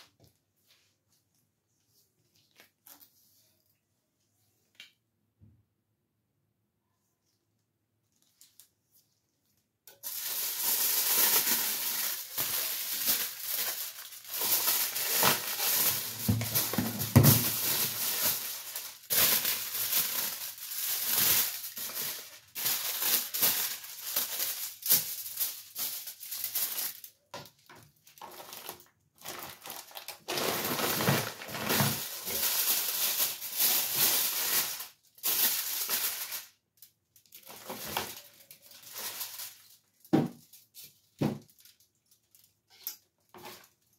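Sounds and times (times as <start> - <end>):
foil and gloves crinkling: 9.9 - 43.9.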